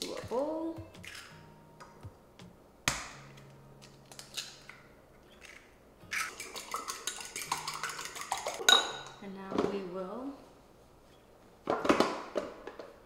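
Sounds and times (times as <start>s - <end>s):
egg cracking on bowl rim: 5.4s - 8.6s
fork beating eggs in bowl: 6.3s - 8.6s.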